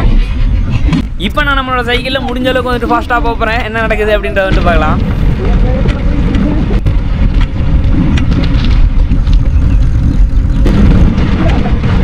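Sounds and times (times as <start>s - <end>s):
wind buffeting microphone: 0.0s - 12.0s
road and frame rattle: 4.4s - 12.0s
low rumble of pedal car: 5.3s - 12.0s.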